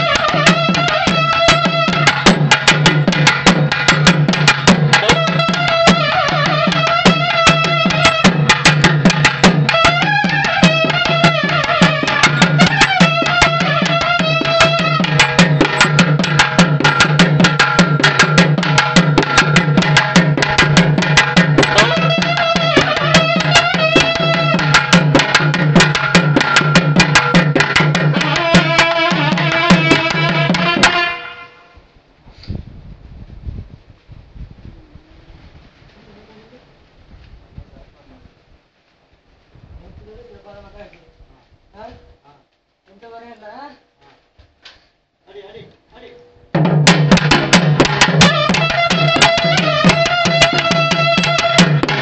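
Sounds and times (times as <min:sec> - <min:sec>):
fast dense drumming: 0:00.0 - 0:31.0, 0:46.6 - 0:52.0
reed-pipe melody: 0:00.0 - 0:31.8, 0:46.6 - 0:52.0.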